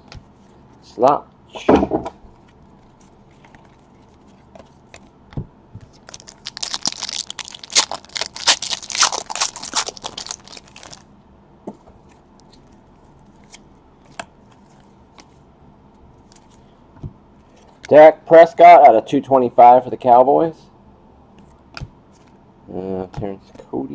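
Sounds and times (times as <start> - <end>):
foil wrapper tearing and crinkling: 6.0 - 11.0.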